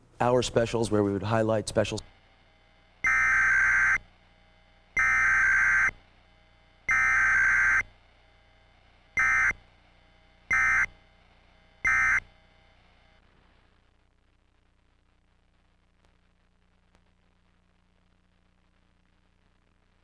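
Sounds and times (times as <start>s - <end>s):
electronic alert data bursts: 3.0s - 4.0s, 5.0s - 6.0s, 6.9s - 7.9s, 9.2s - 9.6s, 10.5s - 10.9s, 11.8s - 12.3s.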